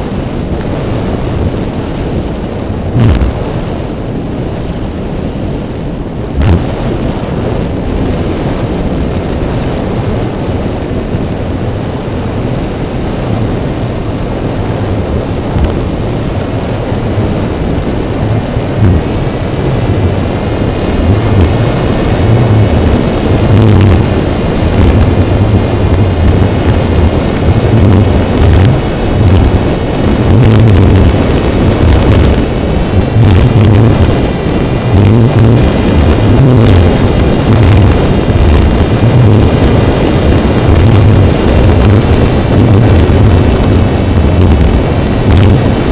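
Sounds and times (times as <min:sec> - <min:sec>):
thin steady whine: 0:00.0 - 0:45.9
wind buffeting microphone: 0:00.0 - 0:45.9
drone propellers whirring: 0:02.9 - 0:03.9, 0:18.0 - 0:45.9.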